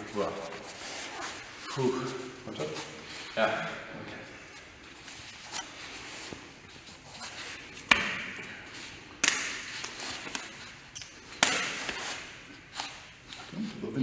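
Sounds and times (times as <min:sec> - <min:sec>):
hands and forearms slapping: 0:07.8 - 0:08.5, 0:09.2 - 0:12.9.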